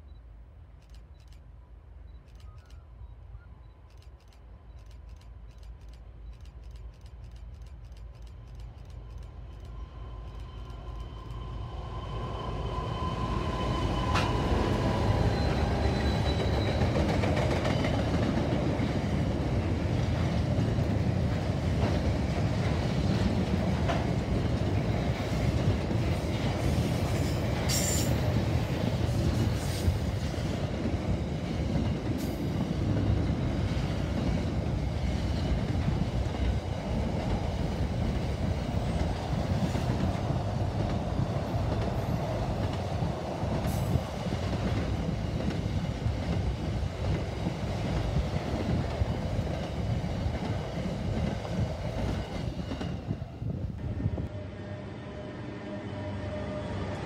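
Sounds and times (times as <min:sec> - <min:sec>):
train wheel squeal: 0:08.0 - 0:18.5, 0:24.8 - 0:30.5.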